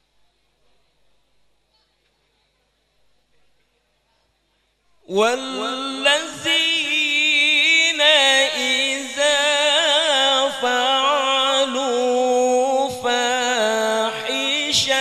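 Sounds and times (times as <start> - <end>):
man reciting melodically into microphone: 5.1 - 15.0.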